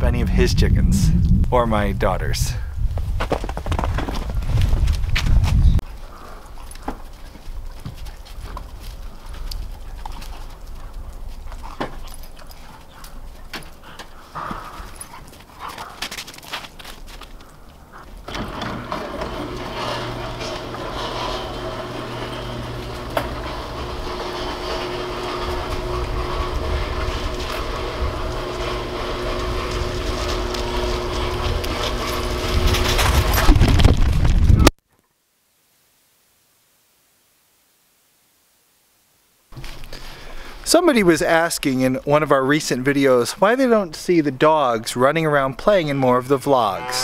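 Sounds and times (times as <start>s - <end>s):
low rumble: 0.0s - 3.2s, 20.2s - 34.7s
footsteps crunching on snow: 2.9s - 18.2s
overhead door opener motor hum: 18.2s - 33.6s.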